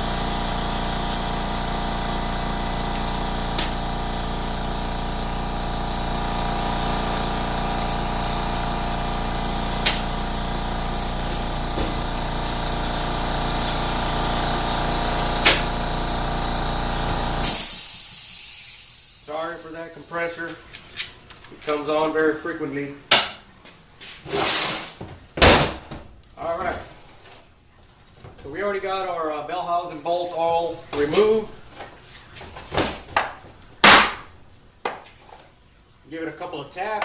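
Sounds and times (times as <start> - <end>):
air compressor humming: 0.0 - 20.7.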